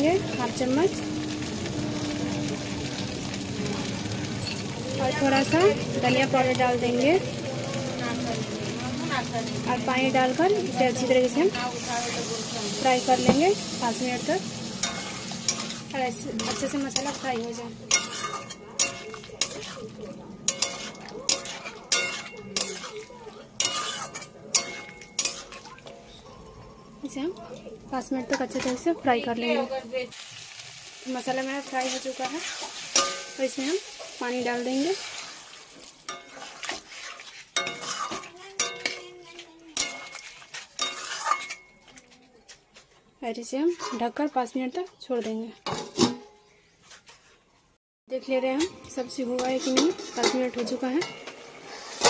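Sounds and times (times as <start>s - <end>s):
metal spatula scraping a pan: 10.1s - 27.2s, 28.0s - 29.6s, 31.2s - 42.1s, 43.6s - 44.2s, 45.6s - 47.3s, 48.6s - 52.0s.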